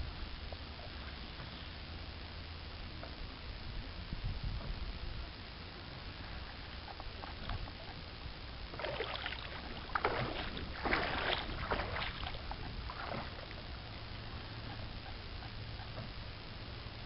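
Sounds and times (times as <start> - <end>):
low rumble: 0.0 - 17.0
water swishing and splashing: 8.7 - 14.0.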